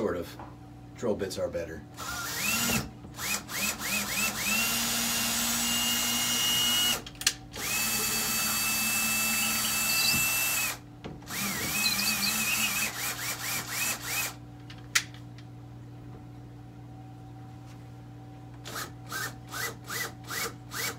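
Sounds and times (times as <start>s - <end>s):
cordless drill driving a screw: 2.0s - 7.0s, 7.6s - 14.4s, 18.7s - 20.9s.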